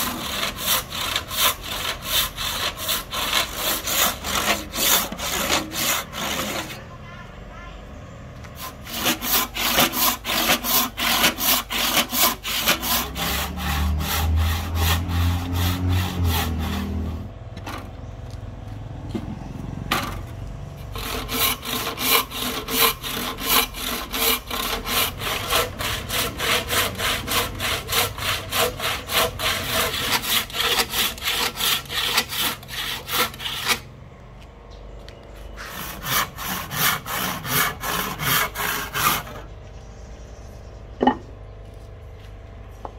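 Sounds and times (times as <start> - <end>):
handsaw cutting wood: 0.0 - 7.0, 8.5 - 17.3, 20.8 - 33.9, 35.6 - 39.5.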